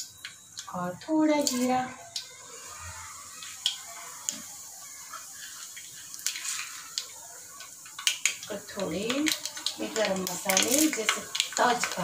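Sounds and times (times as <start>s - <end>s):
sharp pops and crackles: 0.0s - 0.8s, 1.4s - 2.4s, 3.3s - 12.0s
seeds sizzling in hot oil: 0.0s - 12.0s.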